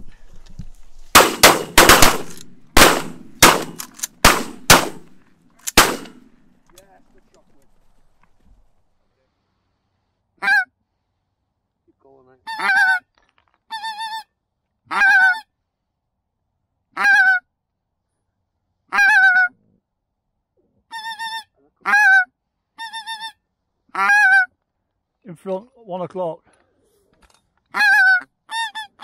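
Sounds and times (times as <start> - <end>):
goose honking: 12.5 - 13.0, 14.9 - 15.4, 18.9 - 19.5, 20.9 - 24.5, 27.7 - 29.0.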